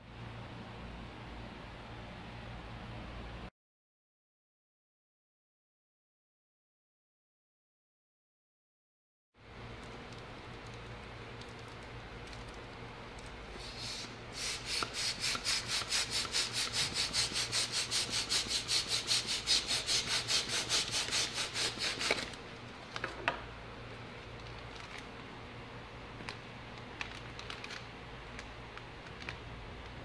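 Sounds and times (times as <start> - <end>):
hand air pump puffing: 13.6 - 22.3.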